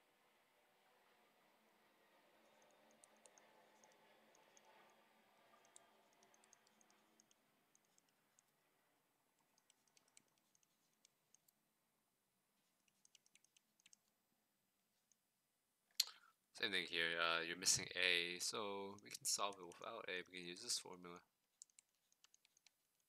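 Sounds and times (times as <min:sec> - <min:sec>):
faint rushing background: 0:00.0 - 0:15.3.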